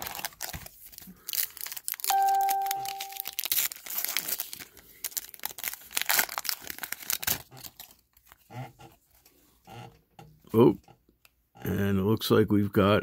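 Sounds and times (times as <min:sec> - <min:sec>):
foil wrapper crinkling and tearing: 0:00.0 - 0:08.4
chime ringing: 0:02.1 - 0:03.4.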